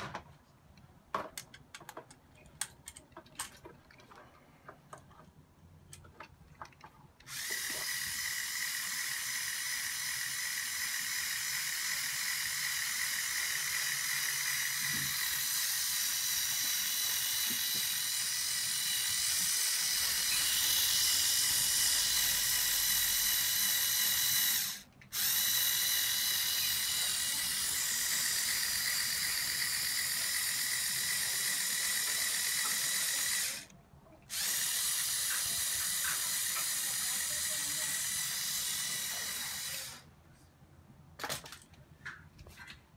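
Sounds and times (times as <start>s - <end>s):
toy motors and gears whining: 6.0s - 33.7s, 34.3s - 40.1s.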